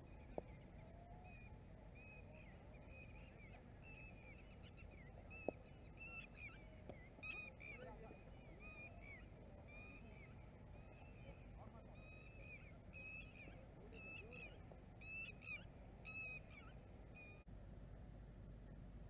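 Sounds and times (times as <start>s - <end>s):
bird calling: 0.0s - 17.5s.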